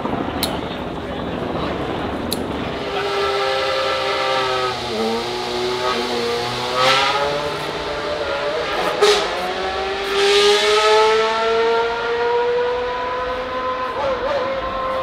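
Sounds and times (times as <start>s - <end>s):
race car engine idling: 0.2s - 10.1s.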